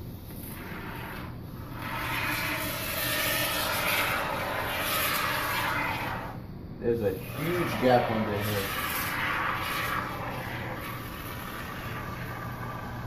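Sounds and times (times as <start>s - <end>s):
spray foam can hissing: 1.8s - 6.4s.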